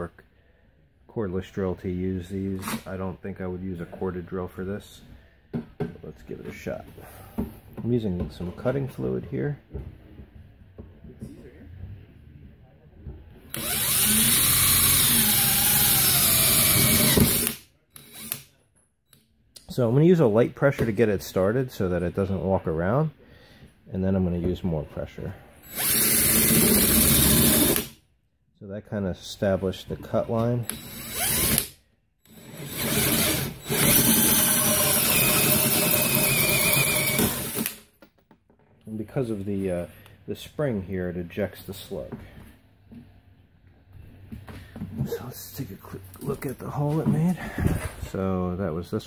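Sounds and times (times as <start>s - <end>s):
drill motor running: 13.5s - 18.4s, 25.6s - 27.9s, 30.6s - 31.7s, 32.3s - 37.8s
hole saw grinding metal: 32.3s - 37.8s.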